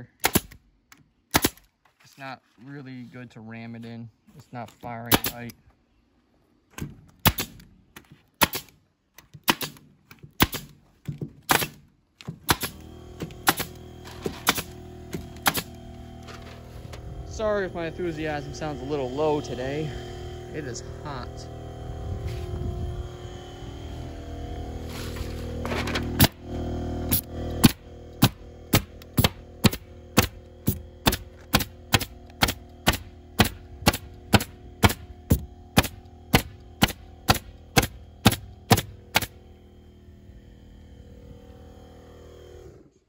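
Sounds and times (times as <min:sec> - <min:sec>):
pneumatic stapler firing: 0:00.2 - 0:00.6, 0:01.3 - 0:01.7, 0:05.1 - 0:05.5, 0:06.8 - 0:07.7, 0:08.4 - 0:10.8, 0:11.4 - 0:16.6, 0:25.6 - 0:26.4, 0:27.1 - 0:39.4.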